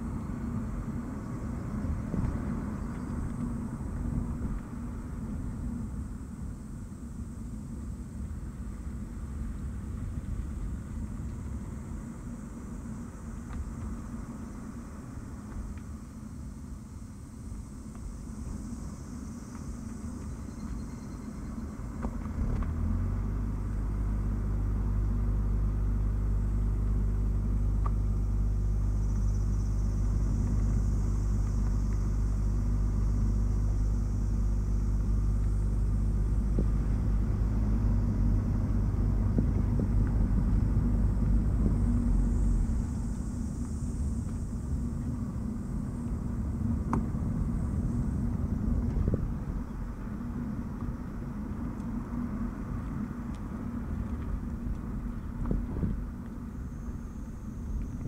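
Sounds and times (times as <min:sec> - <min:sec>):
car engine droning: 0:00.0 - 0:58.0
road and tyre noise: 0:00.0 - 0:58.0.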